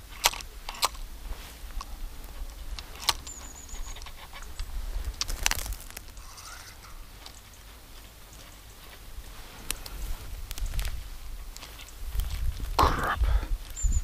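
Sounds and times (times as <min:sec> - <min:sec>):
thin high chirp: 0:03.2 - 0:04.7, 0:05.5 - 0:07.6
wind rumble on microphone: 0:09.1 - 0:14.0.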